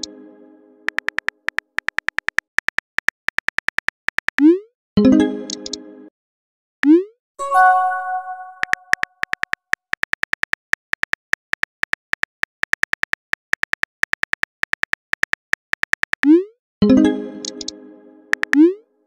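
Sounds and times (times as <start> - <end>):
keyboard tap clicks: 0.9 - 4.3, 5.5 - 5.8, 8.6 - 16.2, 17.4 - 17.7, 18.3 - 18.6
message chime: 7.4 - 9.0.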